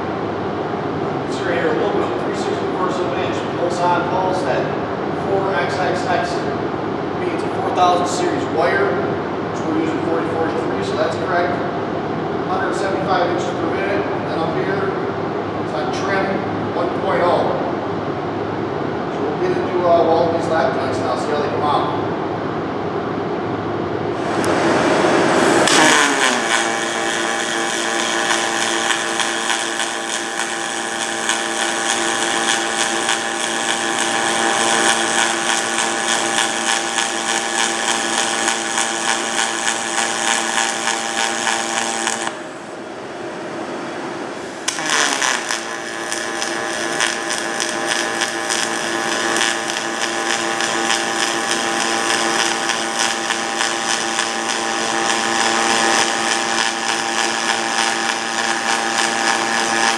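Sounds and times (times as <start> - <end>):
welding arc buzzing and crackling: 24.2 - 42.8, 44.3 - 59.9.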